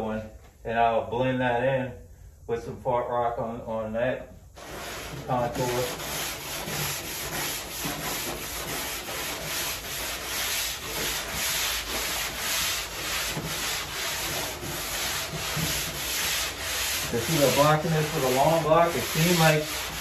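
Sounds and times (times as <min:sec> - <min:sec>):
sanding block scratching: 0:04.6 - 0:20.0.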